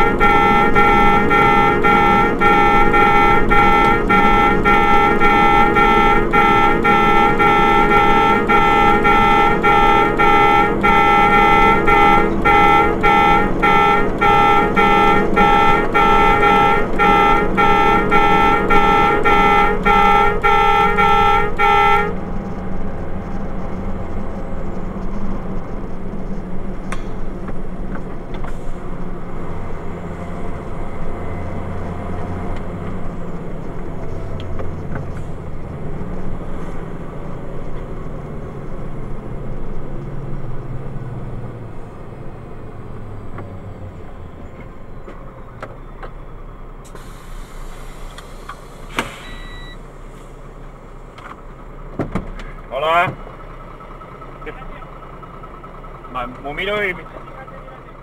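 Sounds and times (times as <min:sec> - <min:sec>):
loud horn-like beeping: 0:00.0 - 0:22.6
road noise inside cab: 0:00.0 - 0:58.0
truck engine drone: 0:00.0 - 0:58.0.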